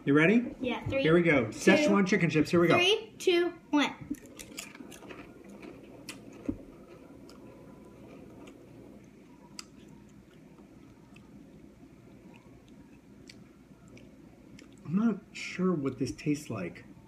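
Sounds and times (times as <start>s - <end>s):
people crunching potato chips: 4.2s - 14.9s.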